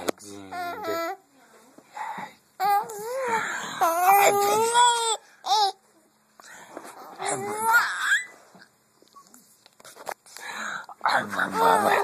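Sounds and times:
baby vocalizing in high calls: 0:07.2 - 0:08.3.

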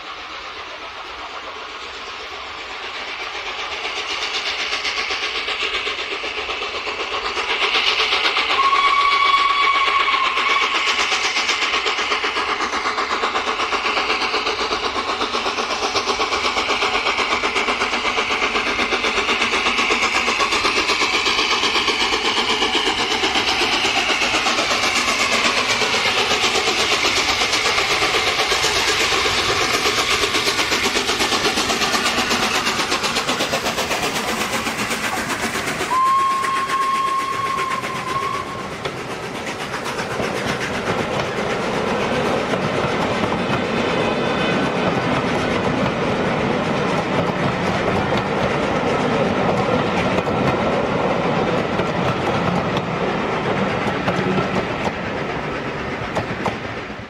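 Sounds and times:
steam locomotive exhaust beats: 0:00.0 - 0:57.0
steam locomotive whistle: 0:08.3 - 0:11.2, 0:35.8 - 0:38.9.

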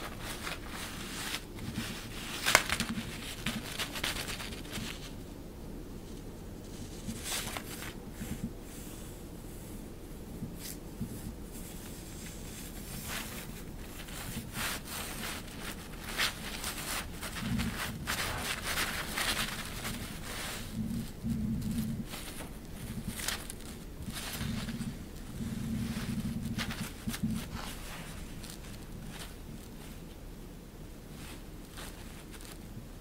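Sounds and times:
fabric rustling and crinkling: 0:00.0 - 0:33.0.

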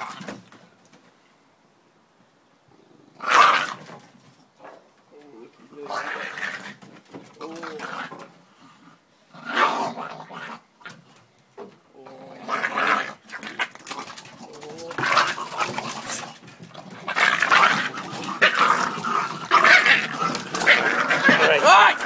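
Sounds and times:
dogs snarling and growling: 0:05.6 - 0:11.0, 0:12.0 - 0:22.0.

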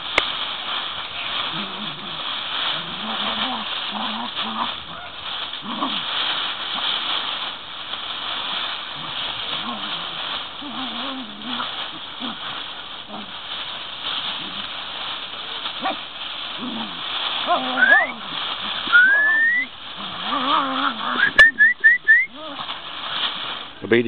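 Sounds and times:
dogs play growling: 0:01.2 - 0:07.1, 0:08.5 - 0:15.1, 0:15.7 - 0:19.0, 0:19.9 - 0:21.4
dog whining: 0:17.5 - 0:18.1, 0:18.9 - 0:22.7.

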